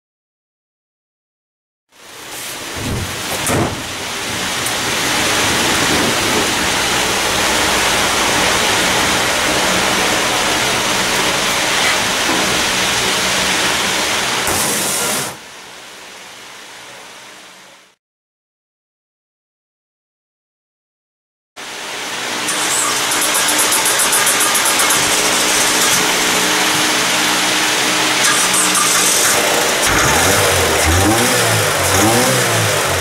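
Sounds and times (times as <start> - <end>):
big fan rushing: 2.1 - 15.5, 21.7 - 28.3, 29.0 - 33.0.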